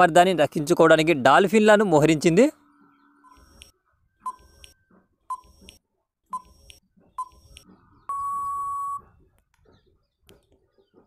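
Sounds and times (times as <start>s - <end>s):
long steady beep: 8.1s - 9.0s.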